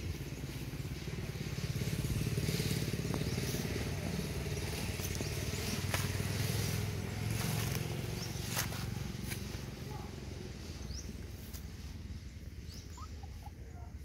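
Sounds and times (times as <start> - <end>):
small engine humming: 0.0 - 13.7.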